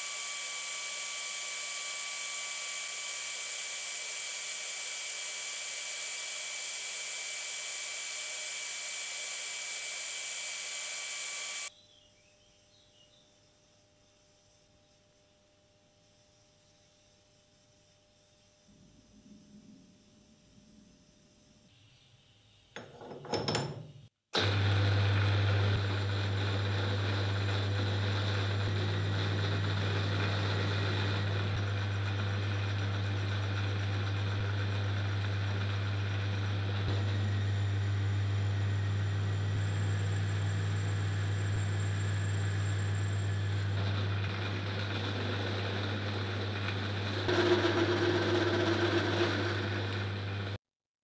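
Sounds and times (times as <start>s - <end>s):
workshop machine humming: 0.0s - 11.7s, 24.4s - 50.6s.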